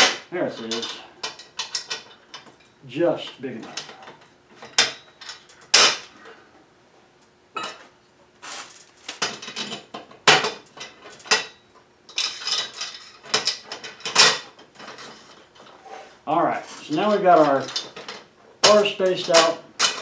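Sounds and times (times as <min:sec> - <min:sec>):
metal parts clinking and knocking: 0:00.0 - 0:02.7, 0:09.2 - 0:15.7, 0:16.6 - 0:20.0.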